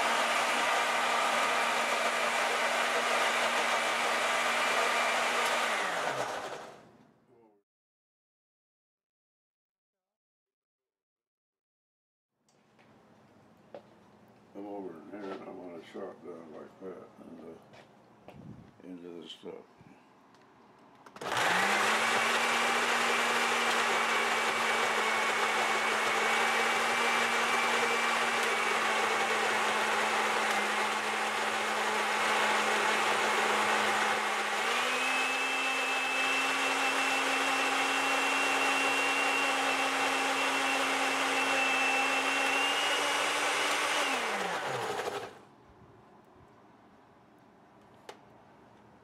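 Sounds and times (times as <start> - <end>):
blender motor running: 0.0 - 6.8, 21.2 - 45.4.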